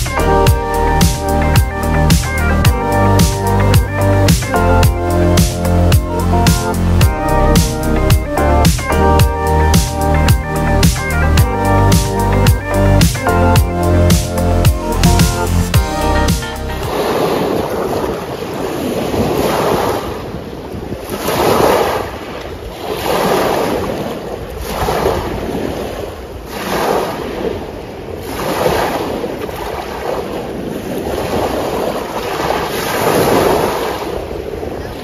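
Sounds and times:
waves breaking on pebble shore: 16.9s - 35.0s
wind rumbling on microphone: 16.9s - 35.0s.

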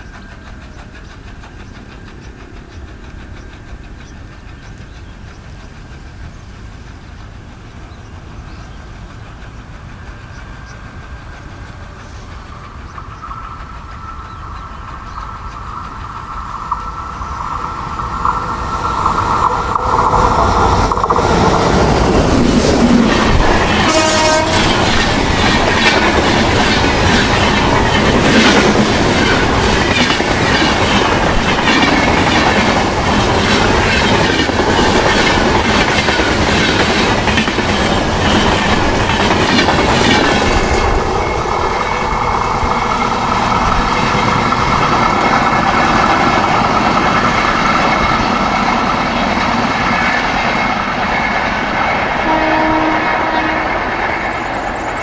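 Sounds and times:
train wheels clattering: 0.0s - 55.0s
train horn blast: 23.7s - 25.0s, 52.2s - 54.1s.

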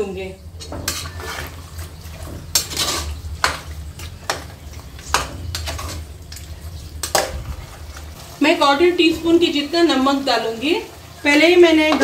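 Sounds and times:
faint frying sizzle: 0.0s - 12.0s
spoon scraping pot: 0.6s - 8.2s.

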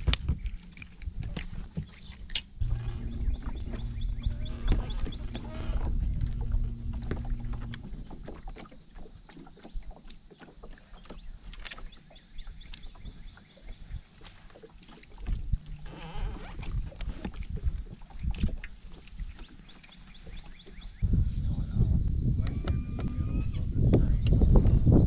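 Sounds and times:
steady low hum: 0.0s - 9.3s
small waves lapping against hull: 0.0s - 21.0s.

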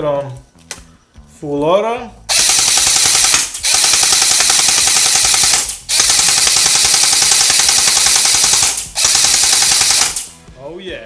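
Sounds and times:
gel blaster full auto firing: 2.3s - 10.3s.

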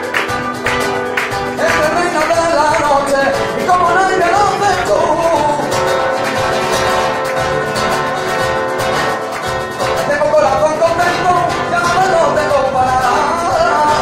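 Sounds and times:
acoustic guitar strumming: 0.0s - 14.0s
hand drum percussion: 0.0s - 14.0s
man singing: 1.4s - 6.7s, 9.8s - 14.0s.

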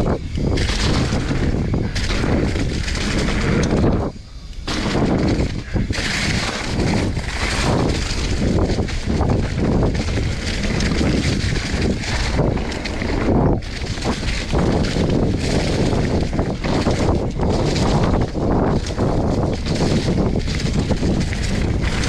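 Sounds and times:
bike knocking and rattling: 0.0s - 22.0s
wind on microphone: 0.0s - 22.0s
tyres crunching through leaves: 4.7s - 22.0s.

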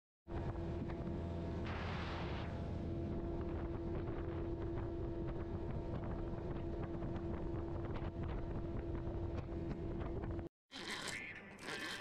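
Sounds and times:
boat motor running: 0.3s - 10.5s
wind buffeting microphone: 3.0s - 10.4s.

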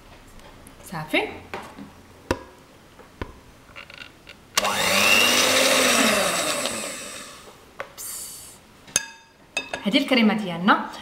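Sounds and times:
electric hand mixer whine: 4.6s - 7.6s.

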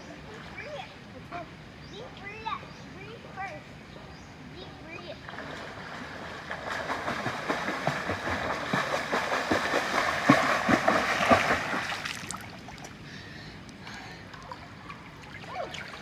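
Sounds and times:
water gently lapping: 4.8s - 16.0s
swimmer splashing in pool: 5.3s - 12.9s.

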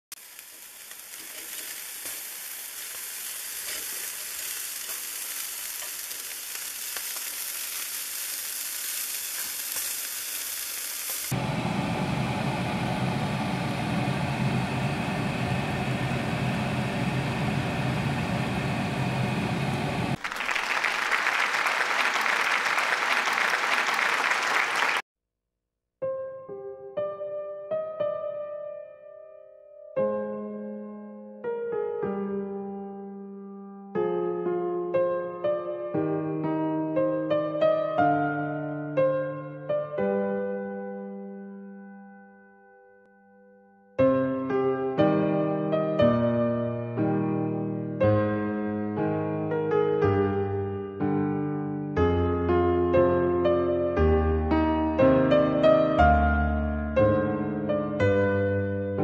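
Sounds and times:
food frying in a pan: 0.1s - 11.4s
meat sizzling on a grill: 0.1s - 11.4s.

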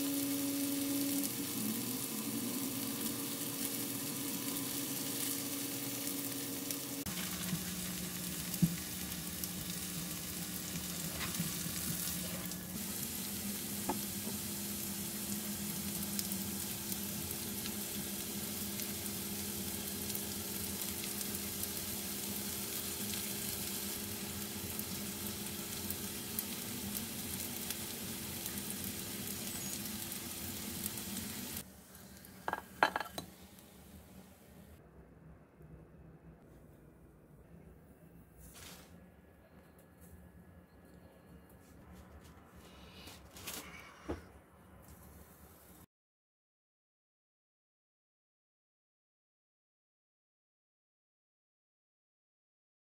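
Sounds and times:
potato pancake sizzling in oil: 0.0s - 33.4s.

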